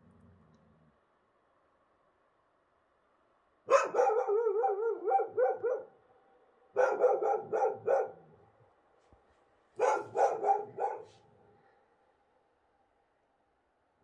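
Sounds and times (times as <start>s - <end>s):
wild dogs barking and yelping: 3.7s - 6.0s, 6.8s - 8.5s, 9.8s - 11.6s.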